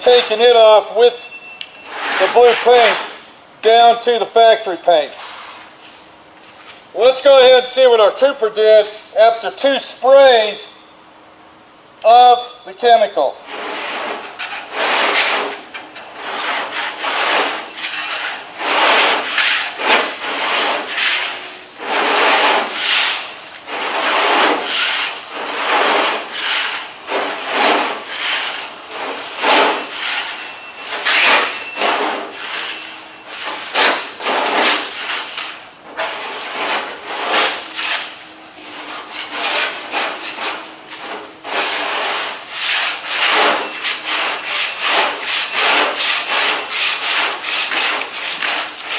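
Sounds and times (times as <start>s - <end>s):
scraper blade scraping paint: 1.8s - 3.2s, 13.5s - 48.9s.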